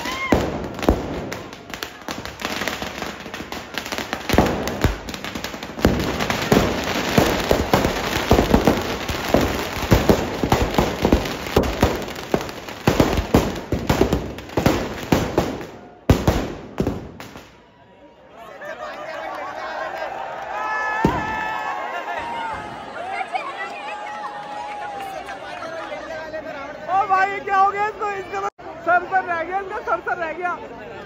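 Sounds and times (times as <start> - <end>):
firecrackers banging and cracking: 0.0 - 17.6, 21.0 - 21.6.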